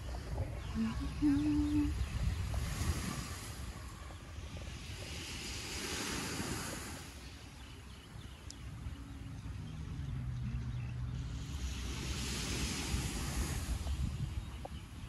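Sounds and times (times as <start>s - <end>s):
low steady engine drone: 0.0s - 4.7s, 7.5s - 14.7s
small waves washing onto sand: 0.0s - 9.6s, 11.0s - 15.0s
constant low rumble: 0.0s - 15.0s.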